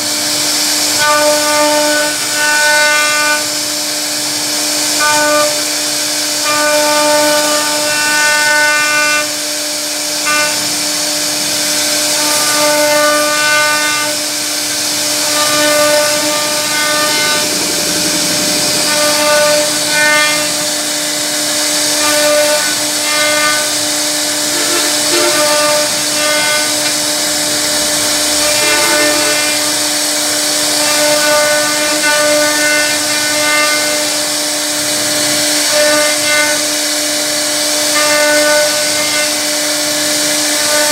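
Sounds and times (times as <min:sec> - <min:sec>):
router spindle whine: 0:00.0 - 0:37.9
bit cutting wood tone: 0:04.4 - 0:36.7.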